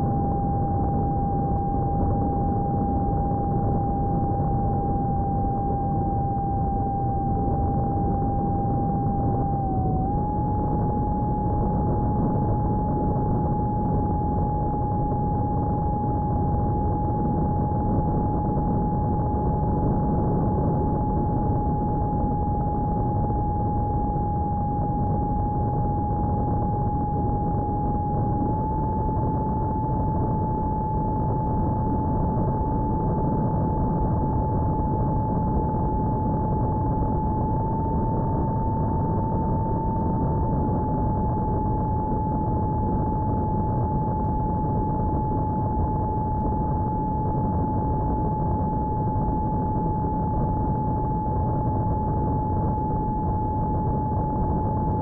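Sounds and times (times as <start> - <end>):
model airplane motor whine: 0.1 - 17.6.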